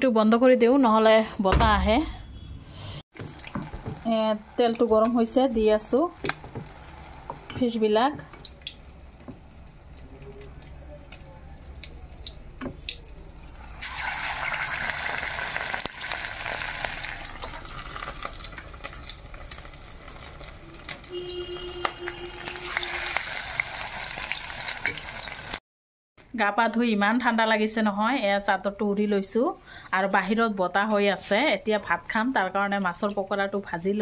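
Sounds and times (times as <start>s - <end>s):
deep-frying sizzle: 3.2s - 25.6s.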